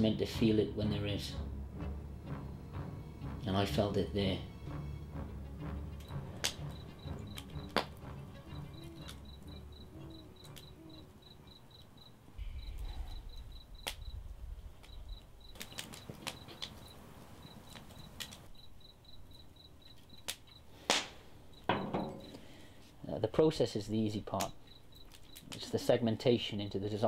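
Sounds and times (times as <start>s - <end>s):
crickets chirping: 4.7s - 22.9s, 23.5s - 27.0s
wood fire crackling and popping: 5.9s - 11.9s, 12.8s - 18.6s, 19.8s - 22.6s, 24.1s - 25.7s.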